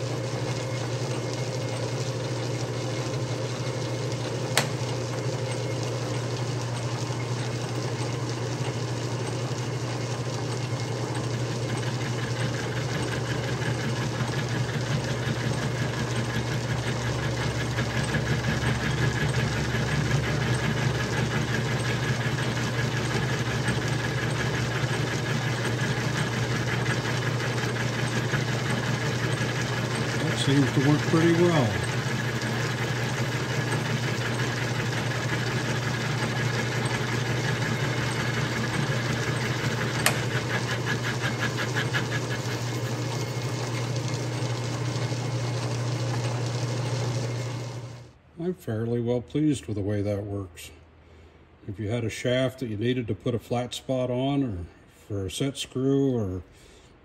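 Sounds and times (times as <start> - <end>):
lathe machine hum: 0.0 - 48.1
sharp click: 4.5 - 4.8
metal cutting noise: 17.8 - 48.0.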